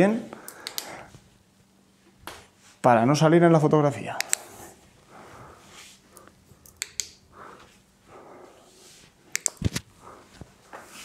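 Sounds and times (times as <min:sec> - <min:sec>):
breaths: 0:00.3 - 0:01.2, 0:04.4 - 0:06.4, 0:07.3 - 0:09.1
sharp clicks: 0:00.5 - 0:00.9, 0:04.2 - 0:04.4, 0:06.6 - 0:07.2, 0:09.3 - 0:09.7
soft rustles: 0:08.6 - 0:11.0.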